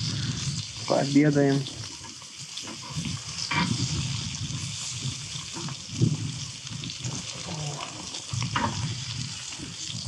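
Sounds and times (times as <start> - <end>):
wind buffeting microphone: 0.0 - 1.0, 2.8 - 7.4, 8.2 - 10.0
meat sizzling in a pan: 0.0 - 10.0.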